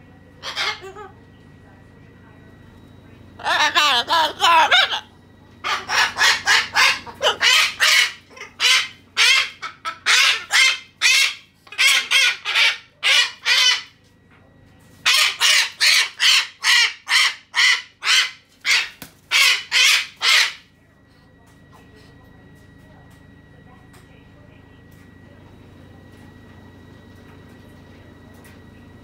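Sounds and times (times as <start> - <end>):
cockatoo screeching: 0.4 - 1.1, 3.4 - 13.9, 15.0 - 20.7.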